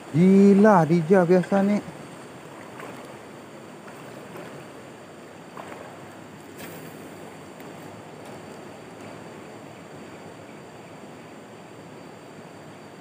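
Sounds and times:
river flowing over stones: 0:00.1 - 0:09.3.

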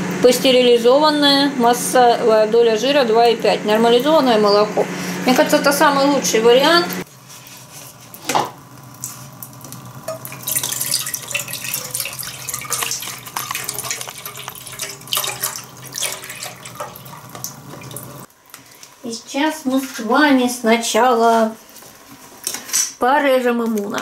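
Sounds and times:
milk pouring into a pot: 0:08.6 - 0:18.9.

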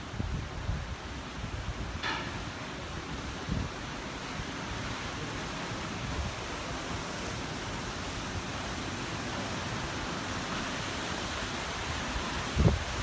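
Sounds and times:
wind buffeting microphone: 0:00.0 - 0:03.9, 0:11.9 - 0:13.0
strong wind through trees: 0:00.0 - 0:13.0.

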